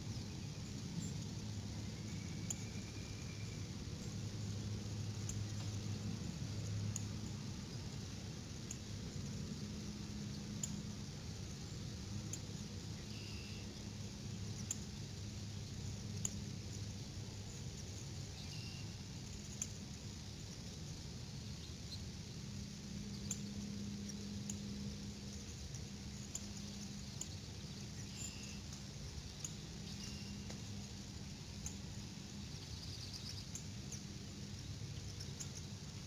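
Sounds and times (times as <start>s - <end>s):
steady low hum: 0.0s - 36.0s
faint clicks: 8.6s - 8.9s, 16.1s - 16.9s, 25.3s - 27.8s, 28.4s - 31.8s.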